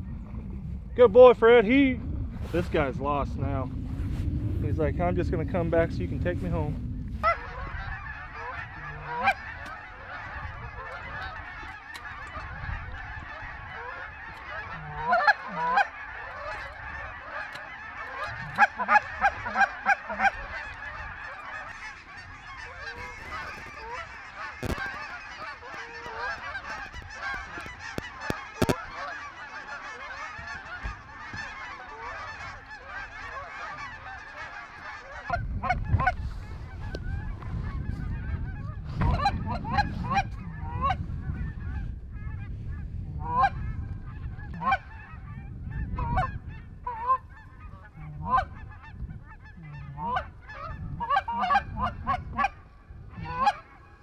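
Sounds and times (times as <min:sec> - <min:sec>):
geese honking: 0:04.7 - 0:54.0.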